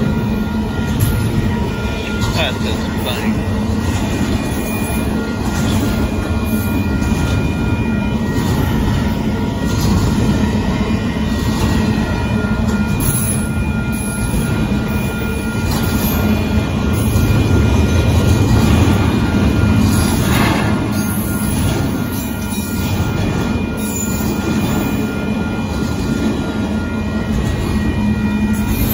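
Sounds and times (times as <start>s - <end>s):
freight train rolling past: 0.0s - 28.9s
steel wheels rumbling on rails: 0.0s - 28.9s.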